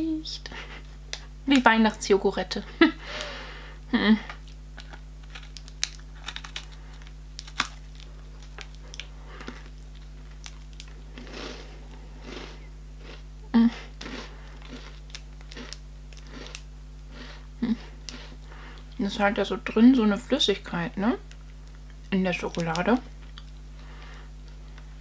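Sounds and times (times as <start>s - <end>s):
biscuit bitten and chewed: 4.3s - 13.3s, 13.9s - 19.0s
foil wrapper crackling: 4.4s - 11.3s, 21.3s - 23.5s.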